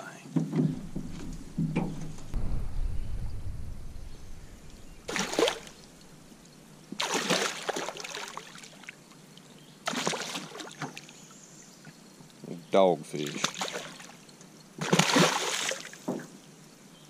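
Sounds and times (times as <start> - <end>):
fish thrashing and splashing water: 7.0 - 8.9, 9.9 - 10.9, 13.3 - 14.1, 14.8 - 16.0.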